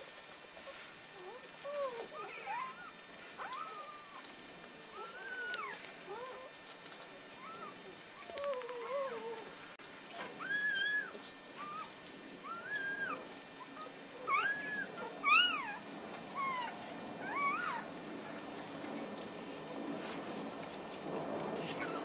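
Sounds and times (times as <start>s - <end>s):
puppies squealing: 1.7s - 4.2s, 5.0s - 6.5s, 7.4s - 9.4s, 10.2s - 15.8s, 16.4s - 17.9s.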